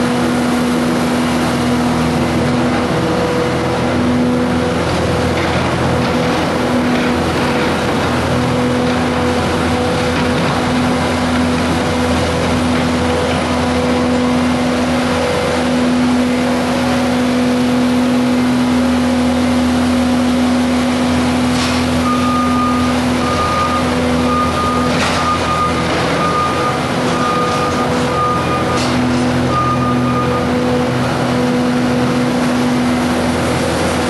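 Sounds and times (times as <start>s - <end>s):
loader engine running: 0.0s - 34.0s
backup alarm beeping: 22.0s - 30.6s.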